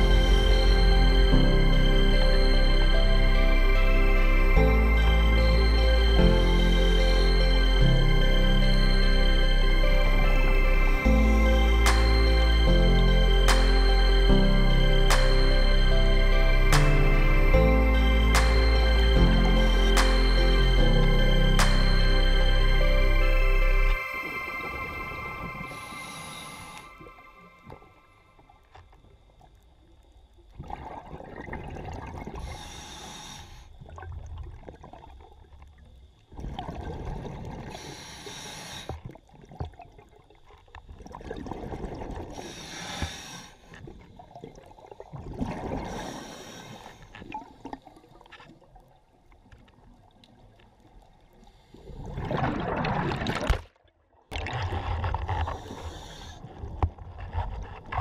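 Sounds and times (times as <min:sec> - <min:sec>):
steady noise: 0:00.0 - 0:28.3
diver breathing through regulator: 0:25.7 - 0:27.1, 0:32.4 - 0:33.7, 0:37.8 - 0:39.0, 0:42.4 - 0:43.8, 0:45.8 - 0:47.2, 0:55.4 - 0:56.6
exhaled bubbles rumbling: 0:30.5 - 0:32.6, 0:33.8 - 0:37.8, 0:39.1 - 0:42.4, 0:43.8 - 0:46.1, 0:47.2 - 0:58.0.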